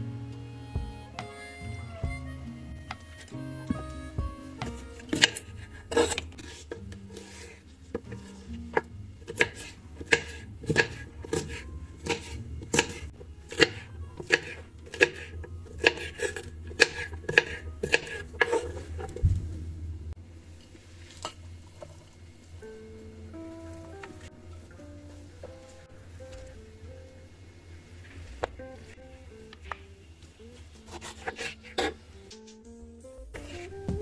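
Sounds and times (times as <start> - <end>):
knife chopping on wooden board: 4.6 - 6.6, 9.3 - 18.6.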